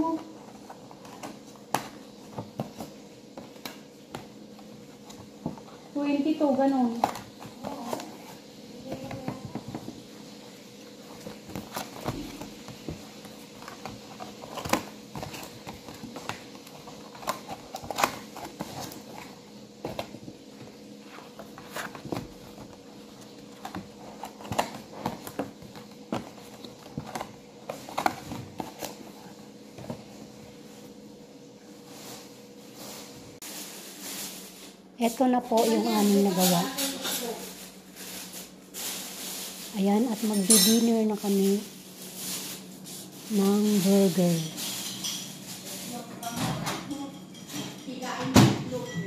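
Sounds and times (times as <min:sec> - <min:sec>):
cardboard box being folded: 0:10.8 - 0:30.3.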